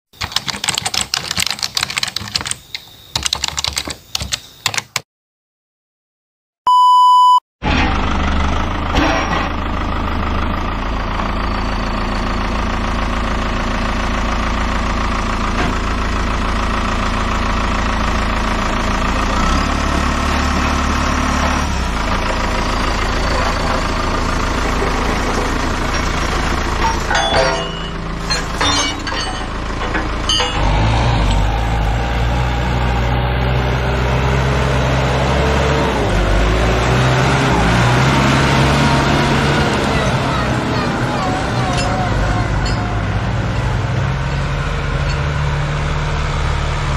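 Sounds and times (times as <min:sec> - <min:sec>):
typewriter key clicks: 0:00.2 - 0:05.0
short electronic beep: 0:06.7 - 0:07.4
tractor diesel engine running: 0:07.6 - 0:46.9.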